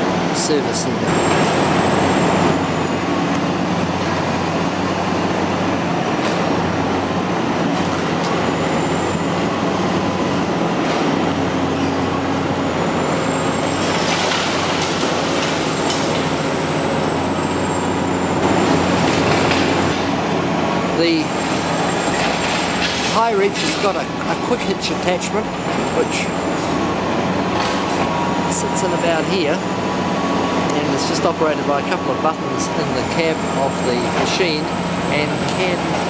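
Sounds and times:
excavator diesel engine hum: 0.0s - 36.0s.

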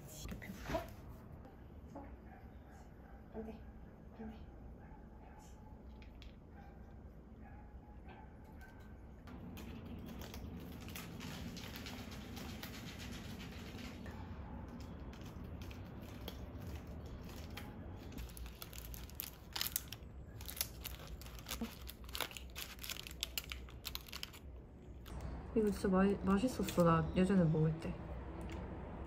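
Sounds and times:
cat chewing plastic wrapper: 9.4s - 14.0s, 14.8s - 25.2s.

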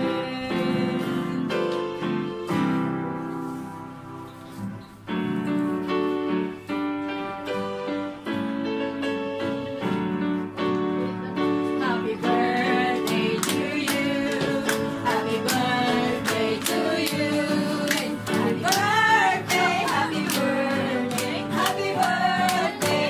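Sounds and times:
woman singing: 0.0s - 1.7s, 11.8s - 23.0s
hand claps: 13.0s - 23.0s.

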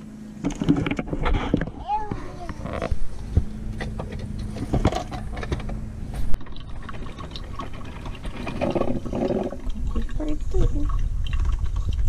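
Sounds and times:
low steady hum: 0.0s - 12.0s
coffee maker gurgling: 6.2s - 12.0s.

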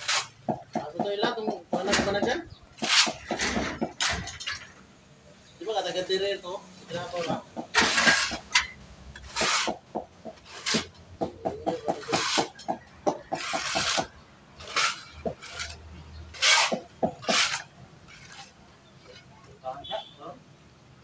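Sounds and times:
trowel scraping mortar on tile: 0.0s - 0.6s, 2.8s - 3.9s, 7.0s - 18.6s.

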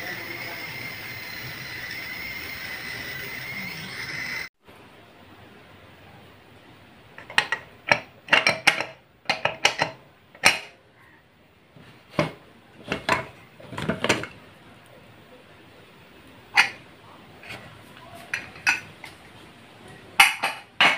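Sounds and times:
steel cookware clinking: 16.5s - 16.8s, 18.3s - 19.2s.

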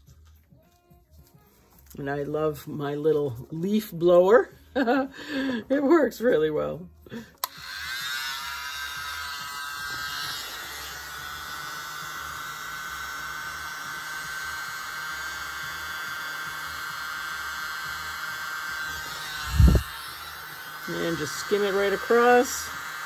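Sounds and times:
small leaf blower whining: 7.2s - 23.0s.

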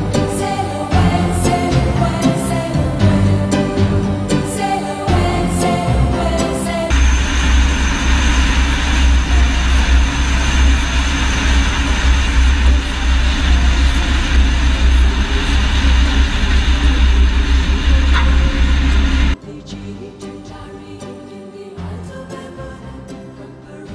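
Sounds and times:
music: 0.0s - 7.0s, 12.6s - 23.9s
airplane engine and rushing air: 6.8s - 19.4s.

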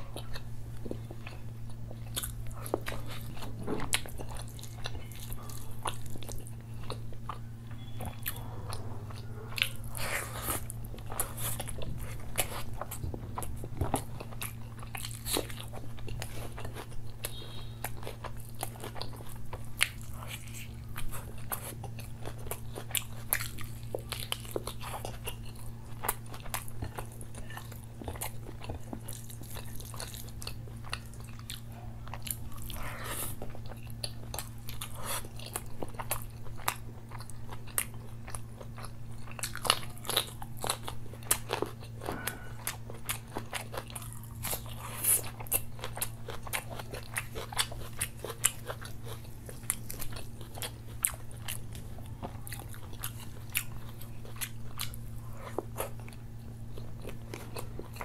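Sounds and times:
low hum: 0.0s - 18.6s
person chewing food: 0.0s - 58.0s.

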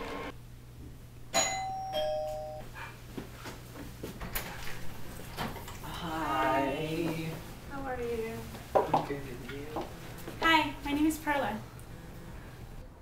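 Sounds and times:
two-tone doorbell chime: 1.3s - 2.7s.

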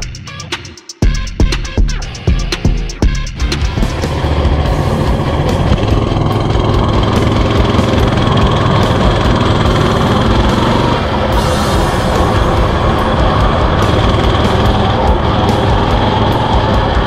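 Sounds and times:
mini bike engine running: 3.6s - 17.0s.

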